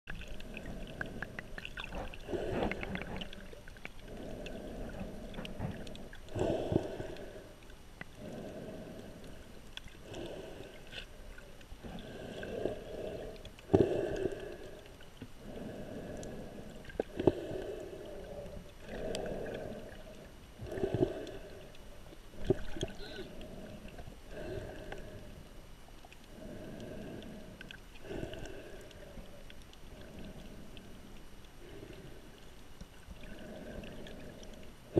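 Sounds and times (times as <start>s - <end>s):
water moving underwater: 0.1s - 34.9s
snorkeler breathing through snorkel: 0.4s - 7.6s.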